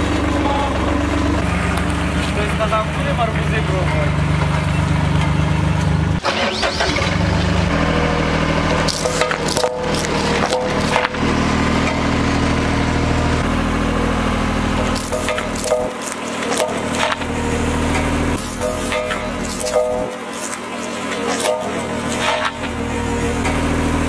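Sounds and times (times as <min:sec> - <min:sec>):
road roller engine running: 0:00.0 - 0:24.0
sharp cracks and crunches: 0:08.7 - 0:12.0, 0:14.7 - 0:17.3, 0:17.9 - 0:22.8.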